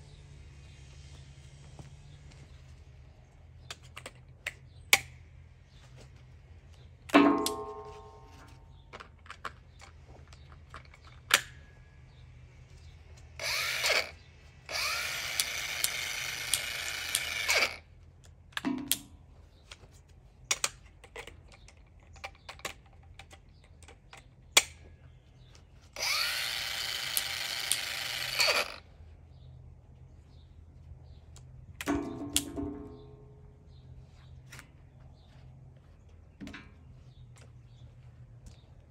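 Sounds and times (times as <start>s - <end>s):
metal clank: 7.2s - 8.6s, 31.9s - 33.4s
clicks and knocks: 7.2s - 9.6s
angle grinder whine: 13.4s - 17.8s, 26.0s - 28.9s.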